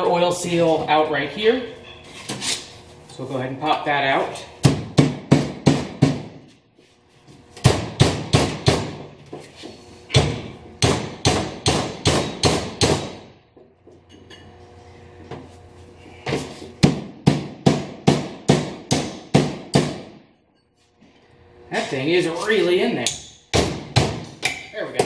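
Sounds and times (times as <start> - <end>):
hammer striking steel punch: 7.6 - 9.0, 10.1 - 13.3, 16.8 - 20.2, 23.0 - 25.0.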